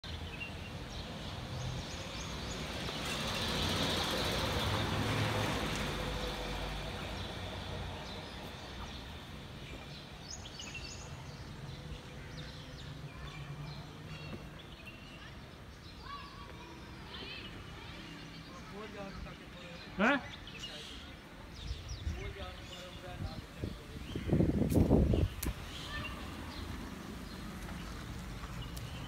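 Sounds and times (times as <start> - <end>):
vehicle passing: 2.4 - 8.8
small birds chirping: 7.0 - 29.0.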